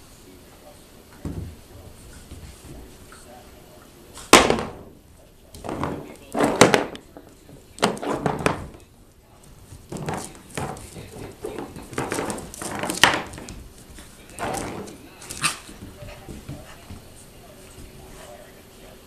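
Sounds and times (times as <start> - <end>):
sharp thunk: 4.3 - 5.0.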